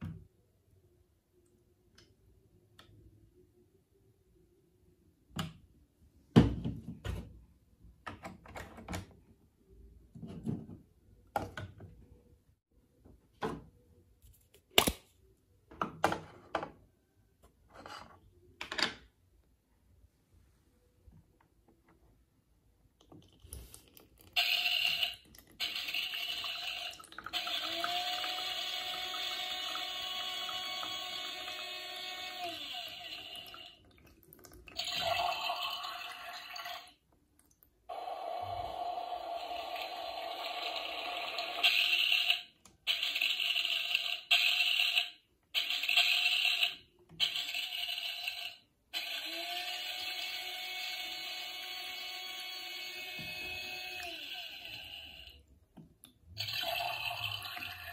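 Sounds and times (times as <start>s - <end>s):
high-pitched toy machine bursts: 24.4s - 33.4s, 37.9s - 55.4s
small electric pump humming: 24.5s - 33.6s, 47.2s - 55.4s
water trickling into cup: 25.3s - 28.3s.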